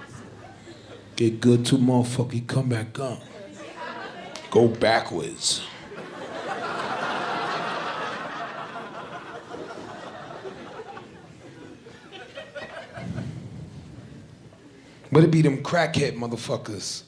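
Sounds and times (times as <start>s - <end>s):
audience laughter: 0.0s - 1.2s, 3.3s - 4.6s, 5.7s - 13.8s.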